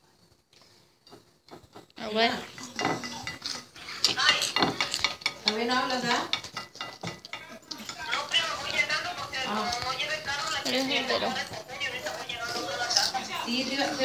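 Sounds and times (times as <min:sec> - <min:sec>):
loud voices: 0:07.4 - 0:14.0.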